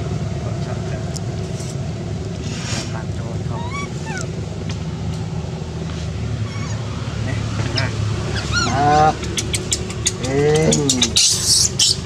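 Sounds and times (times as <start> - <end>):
high squeaky calls: 3.4 - 4.4, 6.4 - 12.0.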